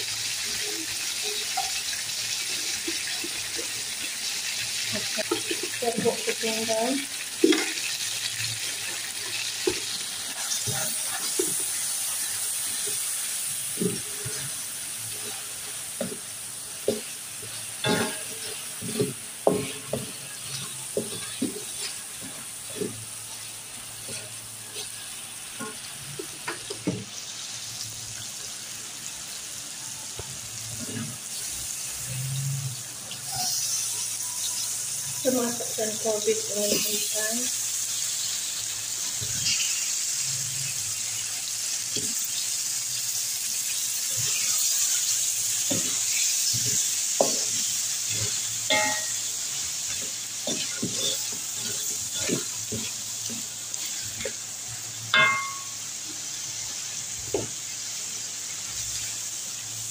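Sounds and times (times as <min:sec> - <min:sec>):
chicken sizzling in oil: 0:00.0 - 0:59.9
spatula scraping and knocking pan: 0:15.3 - 0:27.1, 0:45.6 - 0:54.4, 0:55.1 - 0:55.8.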